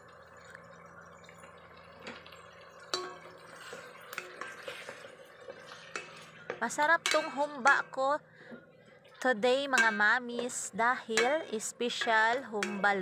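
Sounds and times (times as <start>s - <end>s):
meat sizzling in oil: 0.0s - 7.8s
spatula knocking and scraping pot: 3.0s - 8.0s, 9.6s - 13.0s.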